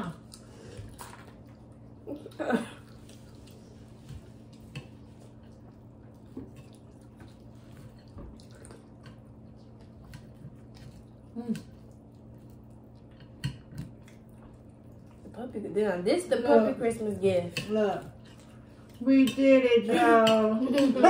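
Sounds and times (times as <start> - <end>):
wet chewing: 0.0 - 15.4.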